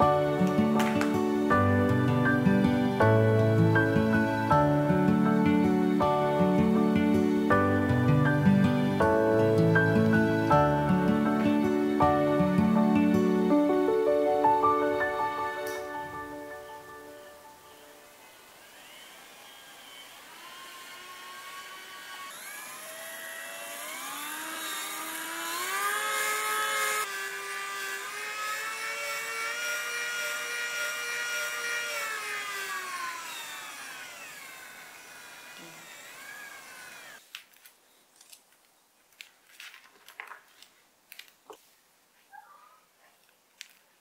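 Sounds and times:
small electric motor whining: 17.6 - 37.2.

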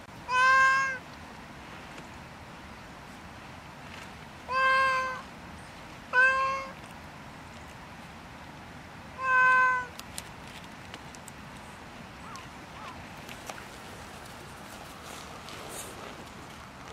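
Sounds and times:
cat meowing: 0.3 - 1.0, 4.5 - 5.2, 6.1 - 6.8, 9.2 - 9.9.

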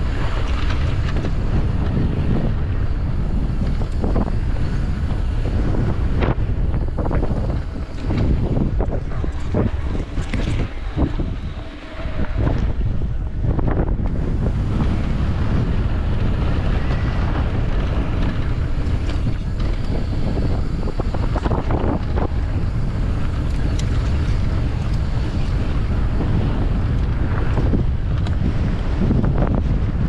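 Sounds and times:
bike clicks and knocks: 0.0 - 2.5, 3.6 - 11.2, 15.8 - 29.2
wind roaring over microphone: 0.0 - 30.0.

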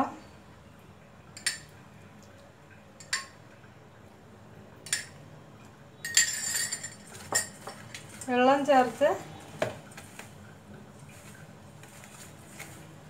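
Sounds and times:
spoon clinking on metal bowl: 4.9 - 5.2, 6.0 - 9.0.

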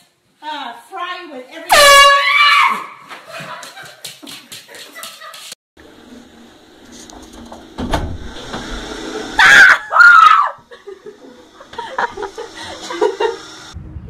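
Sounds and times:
person screaming in fright: 2.2 - 3.0, 9.4 - 10.6.

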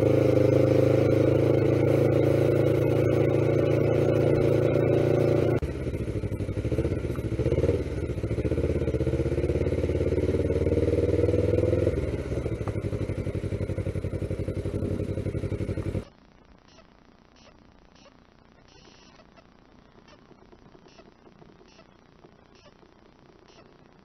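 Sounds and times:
motorcycle engine running: 0.0 - 16.1.

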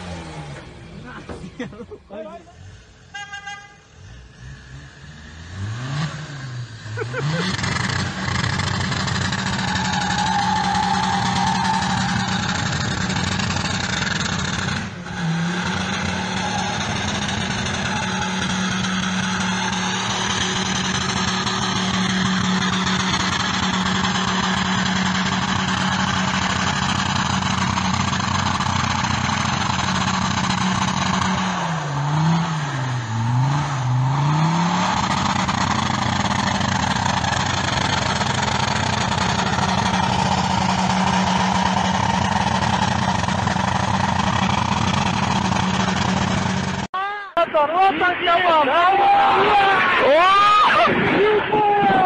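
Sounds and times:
engine straining at high revs: 0.0 - 1.8, 4.1 - 46.9.

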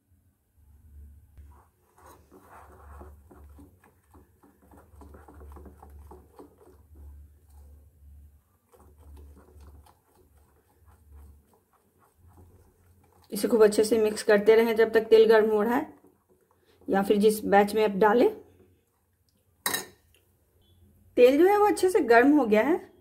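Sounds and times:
spoon scraping batter in bowl: 1.4 - 19.1.

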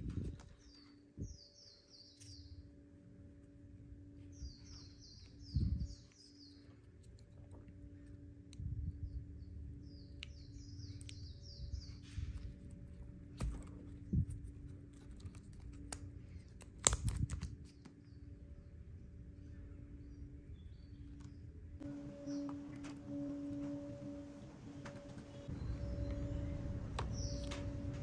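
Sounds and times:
low hum: 0.0 - 28.0
scraping and rustling of wire: 1.8 - 9.0, 11.7 - 18.1
birds chirping: 4.0 - 14.8, 17.7 - 28.0
sharp clicks: 14.4 - 17.9.

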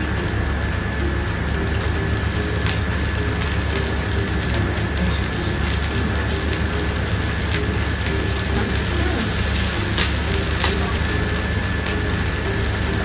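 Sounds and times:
meat sizzling on a grill: 0.0 - 13.0
metal tongs clicking on grill: 10.0 - 11.0.

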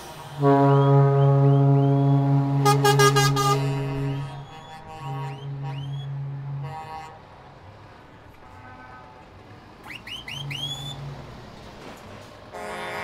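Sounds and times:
truck air horns: 0.0 - 7.6, 8.4 - 9.3, 12.5 - 13.0
short rising whistles: 4.0 - 6.2, 9.8 - 11.0.

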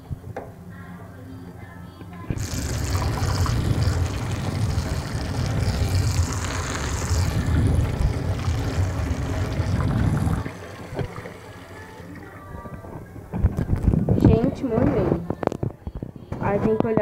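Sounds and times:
tap water rushing with low rumble: 2.3 - 14.4.

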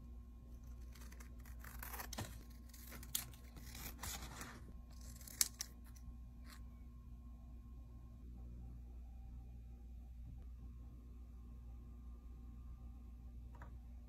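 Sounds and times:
scissors snipping paper: 0.6 - 6.6
paper rustling: 0.7 - 5.7.

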